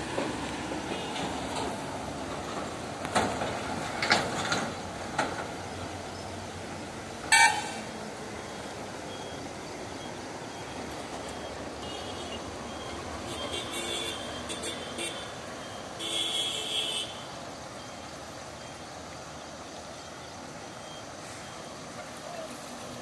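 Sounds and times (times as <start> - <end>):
vehicle horn toot: 7.3 - 7.9, 11.8 - 12.5, 13.2 - 15.3, 16.0 - 17.3.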